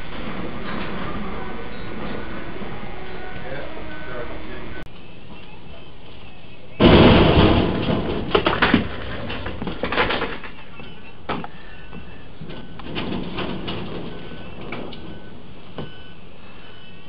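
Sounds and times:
metal clattering and banging: 0:00.0 - 0:02.8, 0:06.8 - 0:16.9
truck crash: 0:00.0 - 0:03.6, 0:06.7 - 0:17.0.

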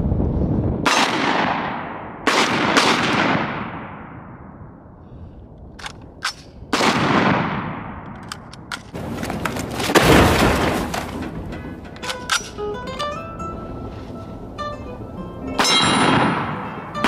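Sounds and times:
pistol shots echoing: 0:00.9 - 0:04.3, 0:06.2 - 0:08.6.

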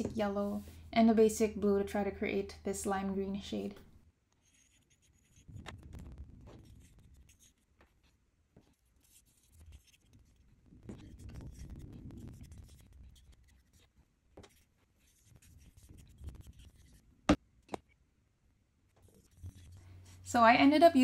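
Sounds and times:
brush scratching metal lid: 0:08.7 - 0:13.9.

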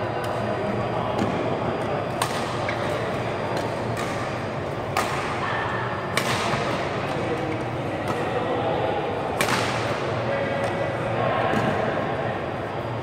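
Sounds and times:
large hall noise: 0:00.0 - 0:13.0
badminton rackets hitting shuttlecock: 0:02.1 - 0:08.3, 0:09.3 - 0:10.8.

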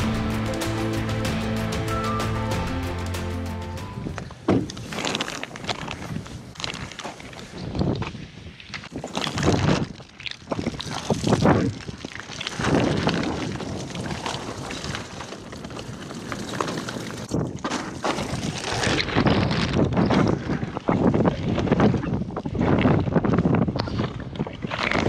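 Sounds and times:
wind buffeting microphone: 0:18.4 - 0:25.0.

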